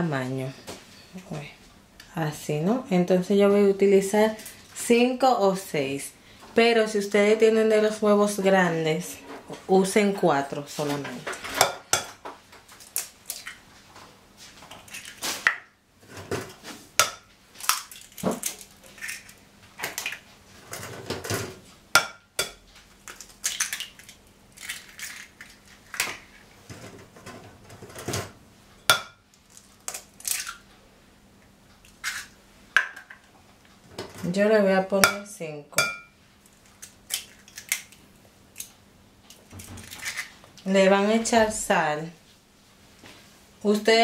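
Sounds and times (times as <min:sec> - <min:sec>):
eggshells cracking: 0:17.6 - 0:20.2, 0:23.0 - 0:26.4, 0:29.4 - 0:30.6, 0:36.4 - 0:38.7.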